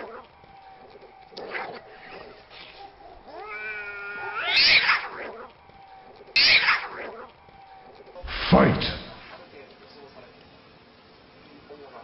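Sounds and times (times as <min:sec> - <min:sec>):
cat yowling: 0:00.8 - 0:05.5, 0:06.3 - 0:07.3
cats fighting outbursts: 0:01.3 - 0:05.5, 0:06.2 - 0:07.3.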